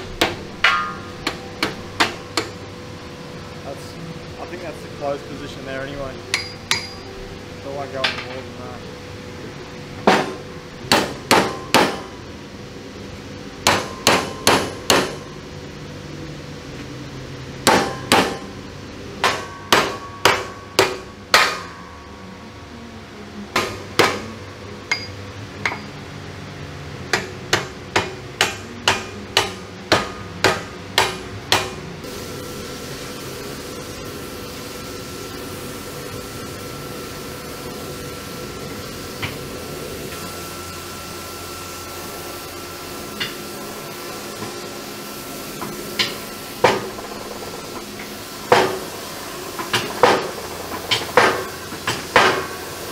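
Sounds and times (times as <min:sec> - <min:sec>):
machine hum with high tone: 0:00.0 - 0:52.9
hammer blows ringing on steel: 0:13.6 - 0:15.2, 0:19.2 - 0:22.1.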